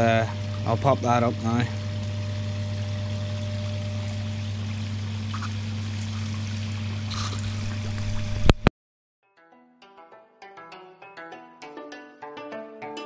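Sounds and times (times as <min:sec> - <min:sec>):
constant low hum: 0:00.0 - 0:08.7
water splashing into pond: 0:03.5 - 0:08.7
plucked music: 0:09.3 - 0:13.0.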